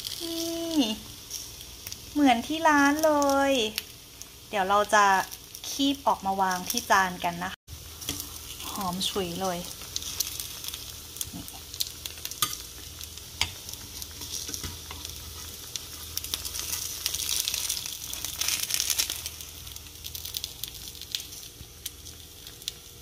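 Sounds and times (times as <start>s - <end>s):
frying pan sizzling: 0.0s - 23.0s
tongs clicking against pan: 11.3s - 12.6s.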